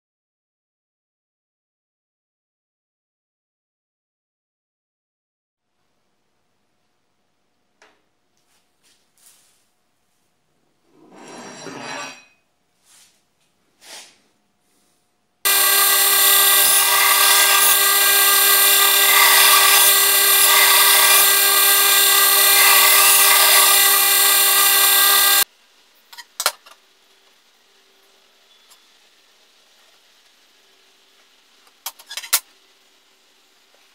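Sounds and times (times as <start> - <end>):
power grinder grinding steel: 15.5 - 25.4.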